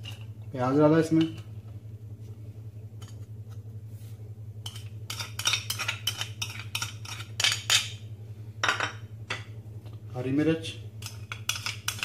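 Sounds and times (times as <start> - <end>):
low hum: 0.0 - 12.0
ceramic bowl clinking: 8.6 - 9.5.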